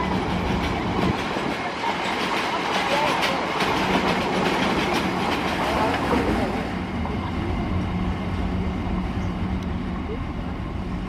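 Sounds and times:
train wheels clicking over rail joints: 0.0 - 6.8.

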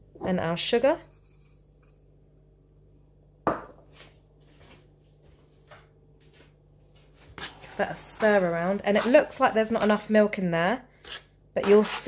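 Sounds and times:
bowl knocking on worktop: 3.5 - 3.8.

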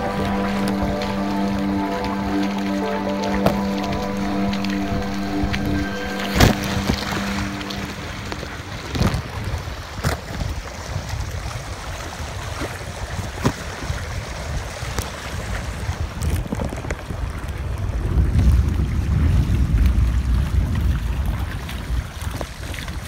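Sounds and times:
wind buffeting the microphone: 8.7 - 23.0.

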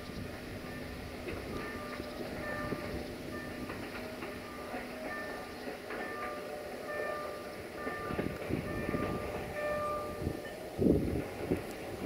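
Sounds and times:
wind on the microphone: 0.0 - 4.0, 7.9 - 12.0
train low rumble: 0.0 - 12.0.

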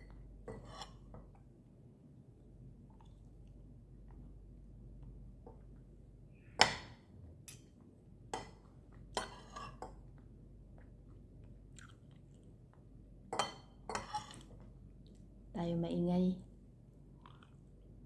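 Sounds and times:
metal cutlery scraping ceramic plate: 0.5 - 1.0, 9.2 - 9.8, 13.4 - 14.4
chewing food: 10.1 - 13.0, 17.1 - 17.9.

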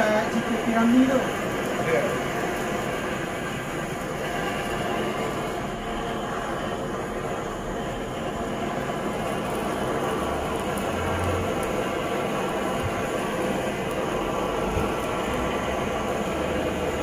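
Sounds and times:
gas blowtorch hissing: 0.0 - 17.0.

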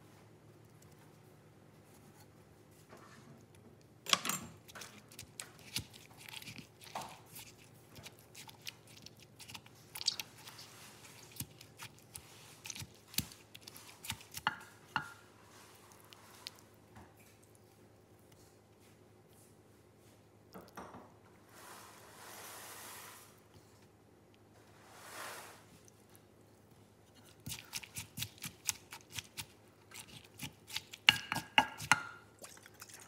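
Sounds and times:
pestle pounding in a mortar: 30.7 - 32.2.

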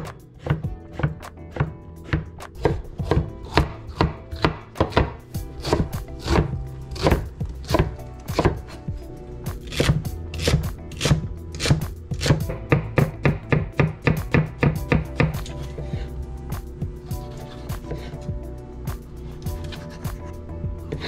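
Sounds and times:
knife chopping on wooden board: 0.0 - 8.8, 9.6 - 16.0, 17.7 - 18.2.

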